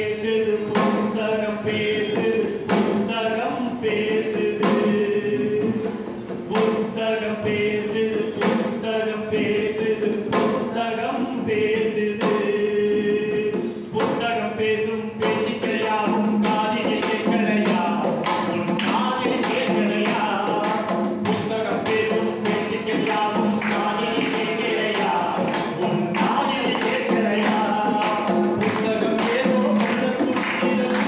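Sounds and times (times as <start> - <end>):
hand percussion beat: 0.0 - 31.0
man singing into microphone: 0.0 - 31.0.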